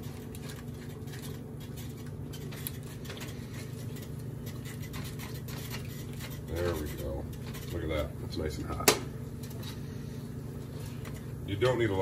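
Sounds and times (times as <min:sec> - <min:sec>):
spatula scraping pot: 0:00.0 - 0:08.7
steady low hum: 0:00.0 - 0:12.0.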